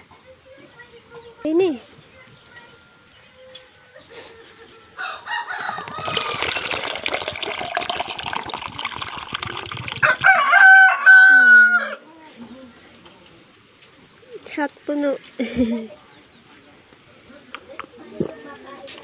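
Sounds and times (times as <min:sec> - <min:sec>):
rooster crowing: 0:05.0 - 0:06.9, 0:10.0 - 0:12.0
water splashing into pitcher: 0:05.8 - 0:10.4.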